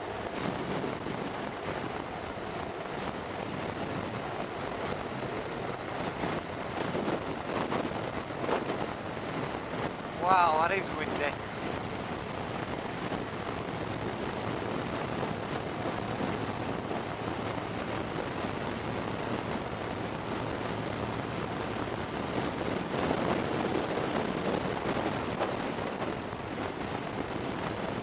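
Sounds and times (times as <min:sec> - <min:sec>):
wind rushing over microphone: 0:00.0 - 0:28.0.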